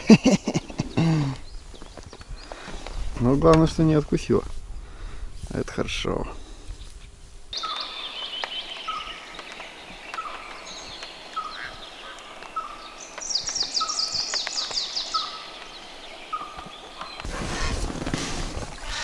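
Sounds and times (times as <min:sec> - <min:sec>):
birds singing: 0:00.3 - 0:03.4, 0:07.5 - 0:17.4
descending bird trill: 0:07.6 - 0:17.2.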